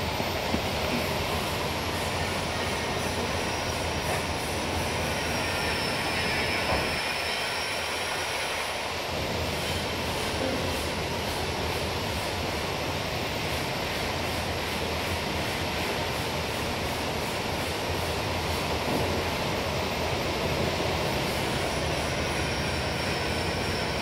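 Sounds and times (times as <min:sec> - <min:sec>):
band saw running with whine: 0:00.0 - 0:10.0, 0:19.6 - 0:24.0.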